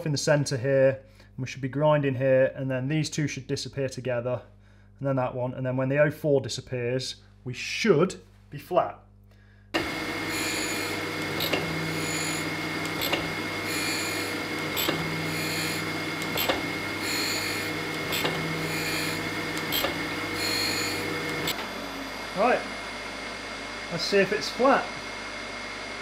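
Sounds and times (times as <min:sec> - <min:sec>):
grinding wheel rasping on steel: 0:09.8 - 0:22.6
grinder motor hum: 0:09.8 - 0:26.0.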